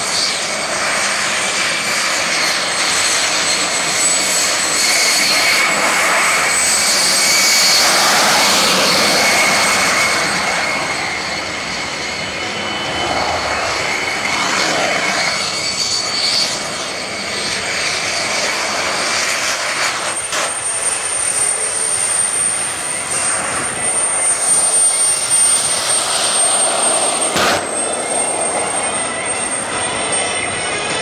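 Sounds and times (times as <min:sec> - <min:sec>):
high-pitched turbine whine: 0:00.0 - 0:31.0
loud jet rush: 0:00.0 - 0:31.0.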